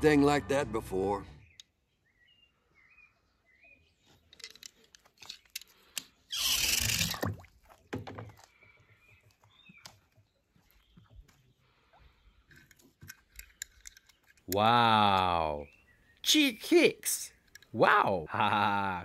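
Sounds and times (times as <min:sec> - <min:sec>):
water stirred and splashed: 0:06.3 - 0:13.0.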